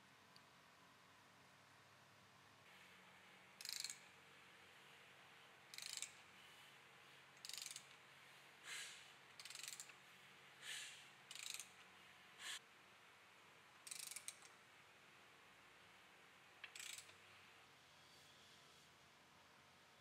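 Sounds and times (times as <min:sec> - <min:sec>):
ratchet wrench clicking: 0:03.6 - 0:04.1, 0:05.7 - 0:06.2, 0:07.4 - 0:08.0, 0:08.8 - 0:10.0, 0:11.3 - 0:11.8, 0:13.8 - 0:14.6, 0:16.6 - 0:17.2.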